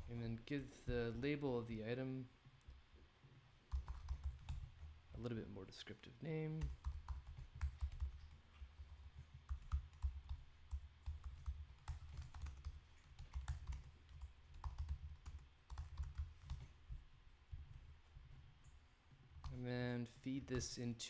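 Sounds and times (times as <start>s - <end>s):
computer keyboard typing: 3.7s - 4.9s, 6.6s - 16.8s.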